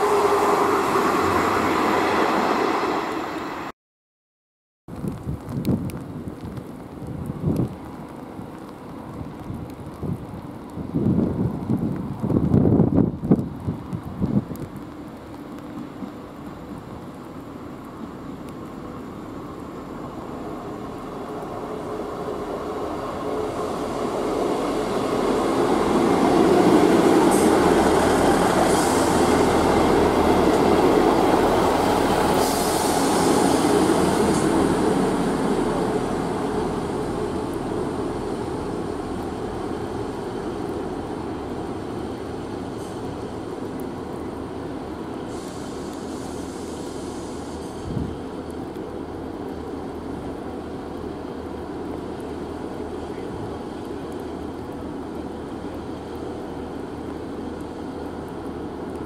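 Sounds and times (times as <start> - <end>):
train diesel engines and wheels: 0.0 - 3.7, 5.0 - 59.0.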